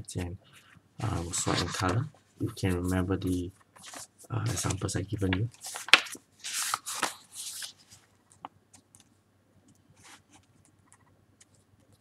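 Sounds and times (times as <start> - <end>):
paper rustling: 1.0 - 8.8.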